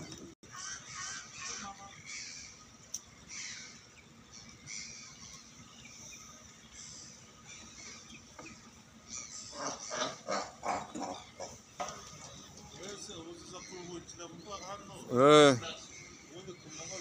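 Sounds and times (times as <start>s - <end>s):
seals barking: 0.5s - 2.6s, 6.8s - 12.6s.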